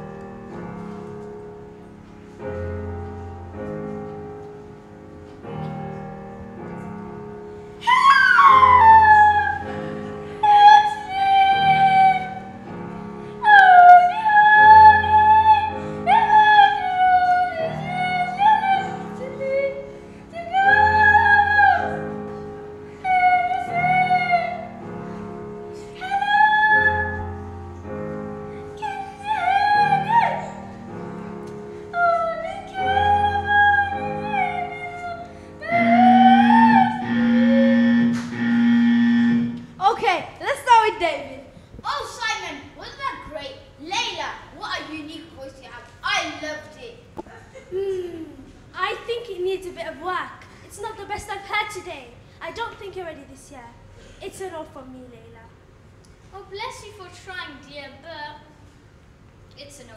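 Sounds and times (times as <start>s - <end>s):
backing accompaniment: 0.0s - 41.2s
girl singing: 7.8s - 12.7s, 13.4s - 24.9s, 25.7s - 27.9s, 28.6s - 30.7s, 31.9s - 37.5s.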